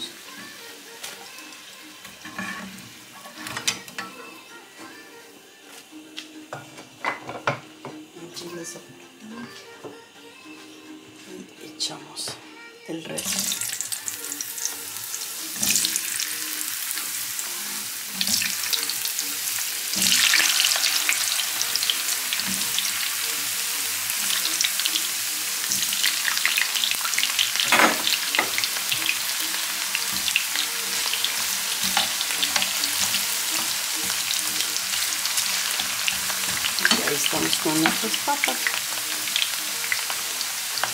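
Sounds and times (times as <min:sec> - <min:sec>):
potato sticks sizzling in oil: 0:00.0 - 0:04.2, 0:13.1 - 0:40.9.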